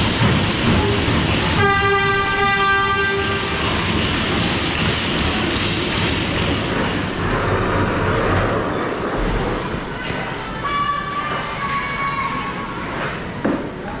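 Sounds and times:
ice hockey arena noise: 0.0 - 14.0
rink horn: 1.5 - 3.6.

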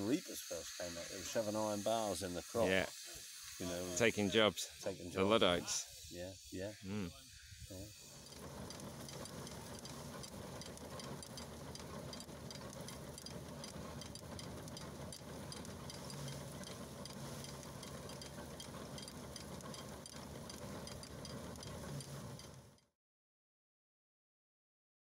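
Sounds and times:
steam traction engine running: 0.0 - 22.9
machinery ticking: 8.2 - 22.9.

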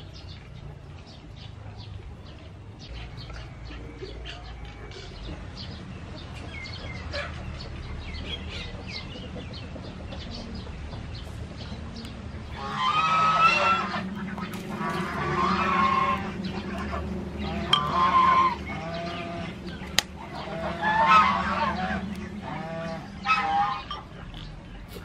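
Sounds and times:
chicken calling loudly: 12.5 - 24.0.

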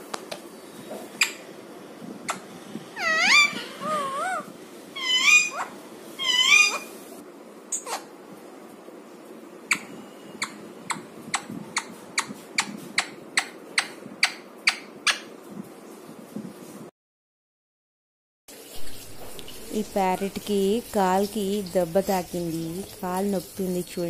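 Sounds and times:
parakeet squawking: 1.2 - 1.5, 2.2 - 7.1, 7.7 - 8.2, 9.7 - 15.3.

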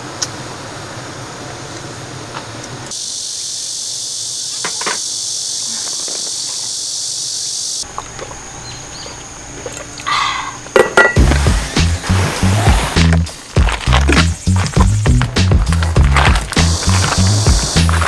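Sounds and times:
high-pitched insect chorus: 2.9 - 11.8, 13.3 - 18.0
music: 11.2 - 18.0.

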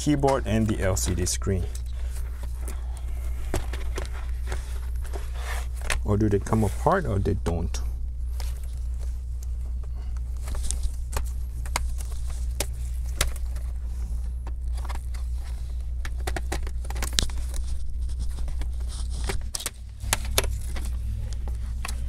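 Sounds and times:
steady low hum: 0.0 - 22.0
laptop plastic clicks and knocks: 16.0 - 17.3.

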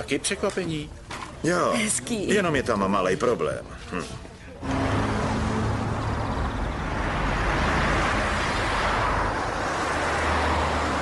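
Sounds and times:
van engine hum and tyre noise: 4.6 - 11.0.

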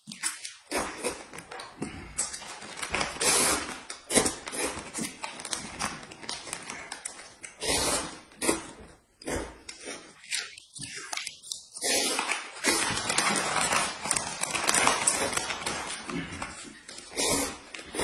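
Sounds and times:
noodles being slurped: 0.0 - 18.0
plastic wrapper crinkling: 1.3 - 7.6, 12.2 - 18.0.

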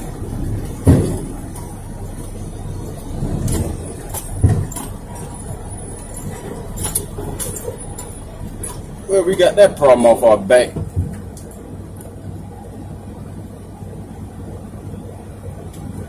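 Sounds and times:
heavy thumps: 0.0 - 9.8
diesel engine running: 0.0 - 16.0.

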